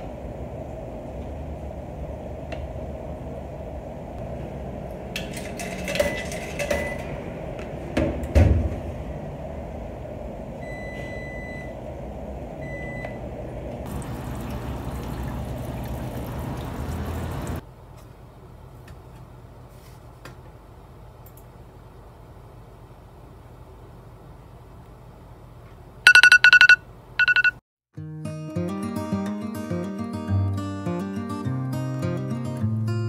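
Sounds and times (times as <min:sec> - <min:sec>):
water filling drum: 0:13.8 - 0:17.6
short beeps: 0:26.1 - 0:27.6.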